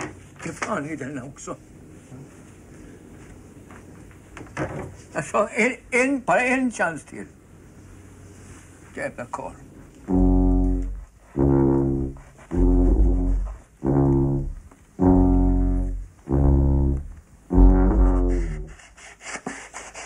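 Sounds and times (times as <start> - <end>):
tuba low notes: 10.1 - 18.8.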